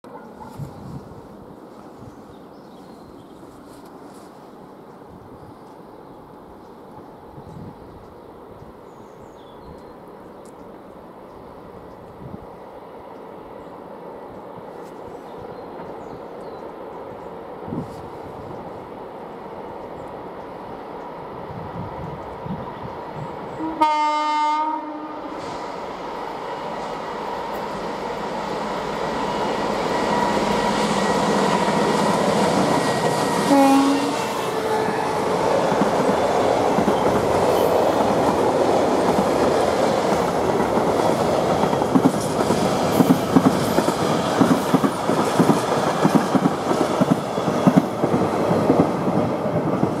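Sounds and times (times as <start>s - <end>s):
diesel locomotive engine: 0.0s - 50.0s
locomotive horn: 23.6s - 25.4s, 33.4s - 35.2s
train wheels clacking over rail joints: 29.6s - 50.0s.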